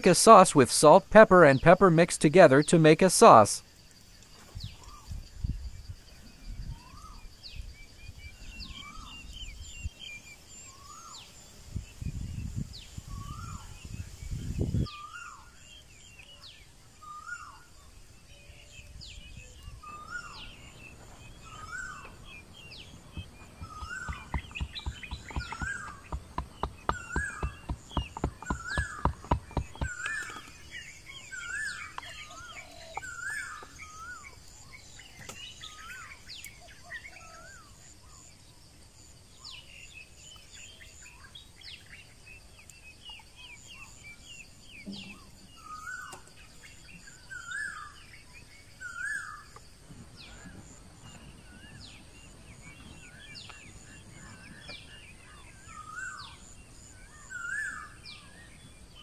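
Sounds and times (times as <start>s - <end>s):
bird repeating wavy phrase: 0.0s - 3.6s
scattered short bird chirps: 19.7s - 34.0s.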